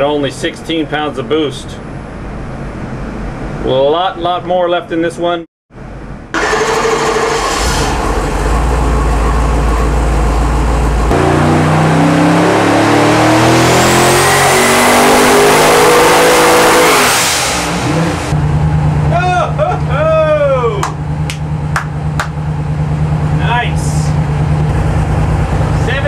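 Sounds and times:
high turbo whine: 5.8 - 26.0
engine revving on dyno: 6.3 - 9.8, 10.9 - 19.2.

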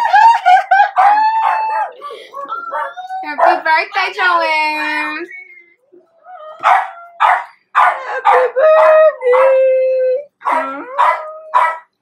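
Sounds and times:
woman sobbing and wailing: 0.0 - 3.4, 8.0 - 11.0.

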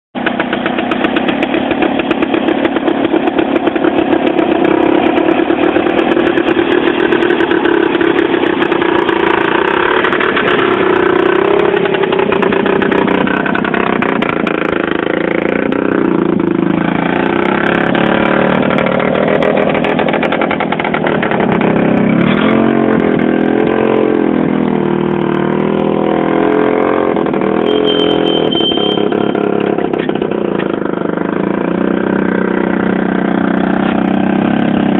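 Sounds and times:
garden tractor engine under load: 0.2 - 34.9
short high-pitched tone: 27.6 - 29.6.

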